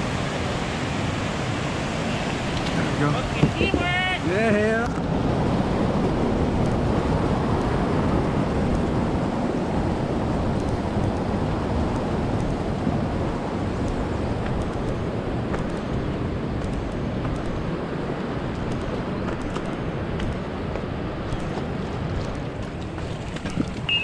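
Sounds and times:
creek rushing over rocks: 0.0s - 10.5s
wind buffeting microphone: 0.0s - 24.0s.

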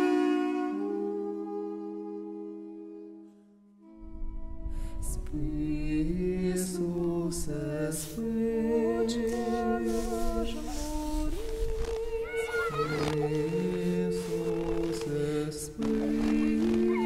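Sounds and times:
voices singing in harmony: 0.0s - 3.2s, 5.0s - 17.0s.

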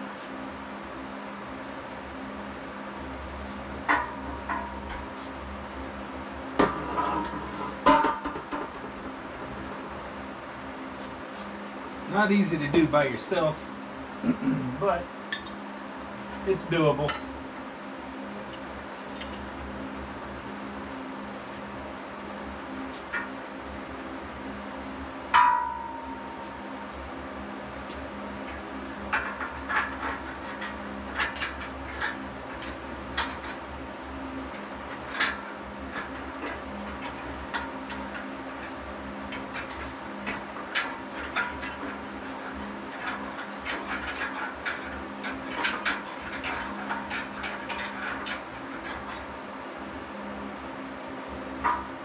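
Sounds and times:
steady low hum: 0.0s - 52.0s
metallic clang: 15.3s - 15.6s, 25.3s - 26.5s
metal parts clicking and tapping: 18.4s - 19.5s, 28.4s - 33.6s, 34.5s - 49.3s.

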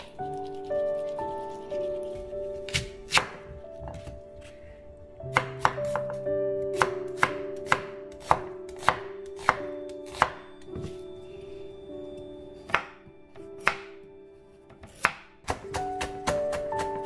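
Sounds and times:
knife slicing onion on cutting board: 0.0s - 3.4s, 5.3s - 10.4s, 14.8s - 17.0s.

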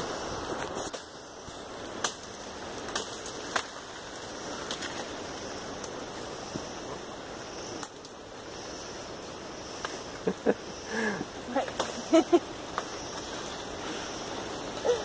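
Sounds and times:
bamboo and dead leaves rustling: 0.0s - 15.0s
twigs snapping: 0.6s - 6.0s.

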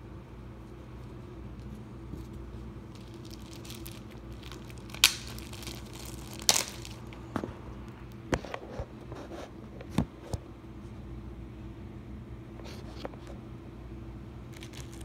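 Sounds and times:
steady low hum: 0.0s - 15.0s
bread roll tearing and crinkling: 1.2s - 7.6s, 14.4s - 15.0s.

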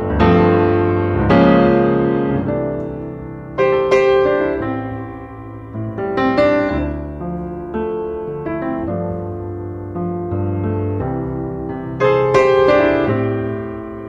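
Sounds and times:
piano chords ringing: 0.0s - 14.0s.

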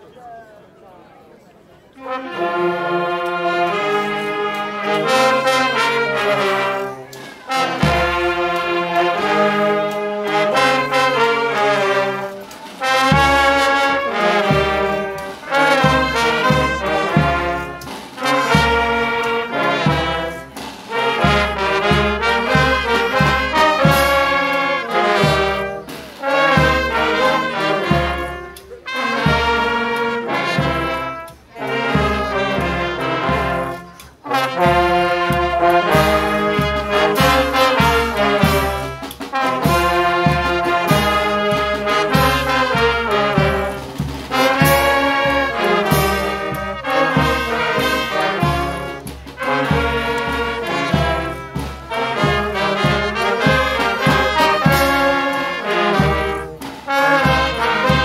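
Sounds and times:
brass band playing: 1.9s - 58.0s.

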